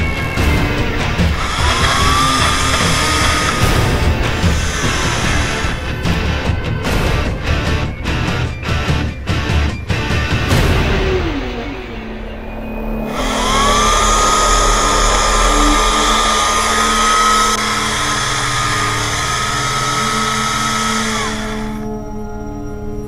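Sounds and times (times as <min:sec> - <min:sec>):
electric chainsaw cutting wood: 0:00.0 - 0:07.0, 0:13.1 - 0:21.9.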